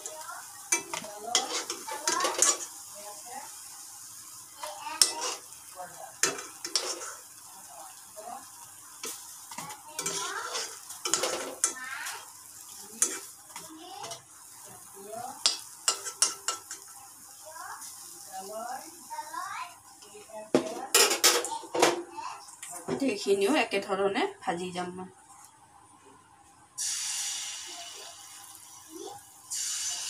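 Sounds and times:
frying oil sizzling: 0.0s - 24.6s, 26.8s - 30.0s
spatula scraping metal wok: 0.8s - 2.7s, 5.0s - 5.5s, 6.2s - 7.3s, 9.5s - 11.8s, 13.0s - 14.2s.

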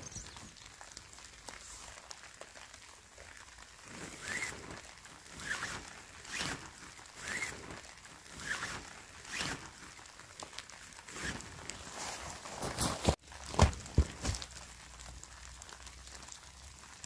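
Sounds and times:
tent pole scraping through fabric: 3.8s - 10.1s, 11.0s - 13.2s.

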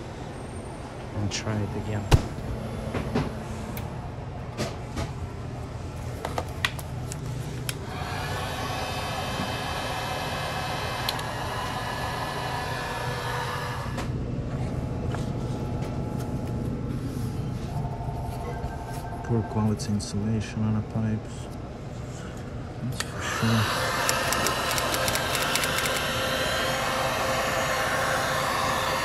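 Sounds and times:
steady low hum: 0.0s - 29.0s
heat gun blowing: 7.8s - 14.0s, 23.1s - 29.0s.

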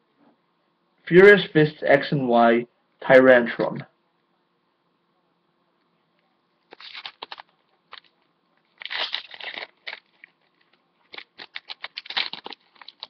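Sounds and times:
foil wrapper tearing and crinkling: 6.7s - 13.0s.

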